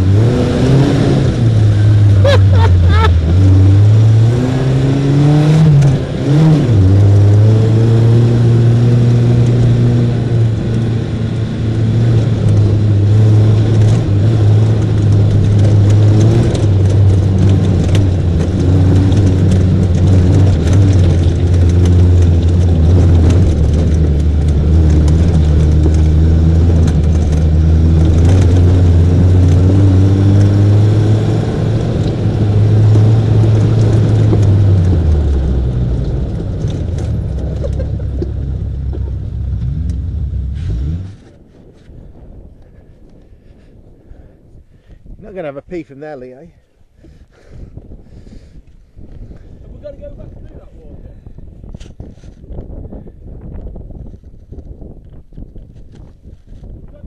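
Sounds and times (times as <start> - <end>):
car engine running under load: 0.0 - 43.3
knocks and rattles from bumpy ground: 13.7 - 29.6.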